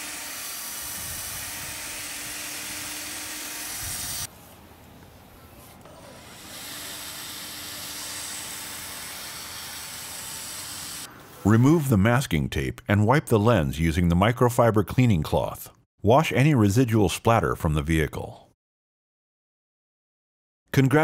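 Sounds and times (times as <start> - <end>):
drill polishing pad hissing: 0.0 - 4.3, 6.1 - 11.1.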